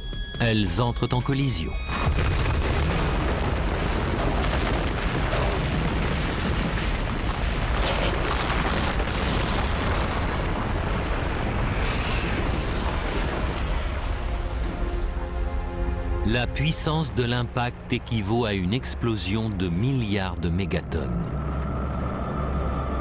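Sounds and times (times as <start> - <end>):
explosion rumble with crackle: 1.8 - 16.0.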